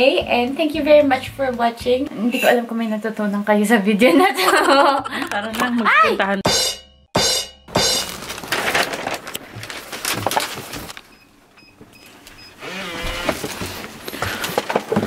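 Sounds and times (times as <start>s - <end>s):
cellophane rustling: 8.0s - 11.1s
front door opening: 10.6s - 13.9s.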